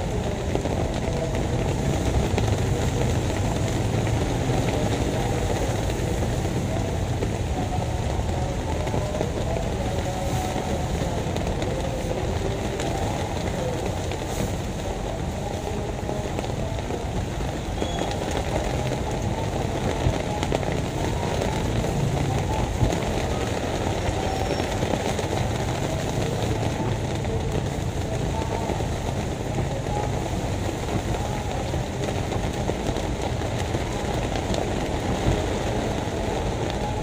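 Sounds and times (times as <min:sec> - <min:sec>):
heavy rain on pavement: 0:00.0 - 0:37.0
vehicles passing on wet road: 0:00.0 - 0:37.0.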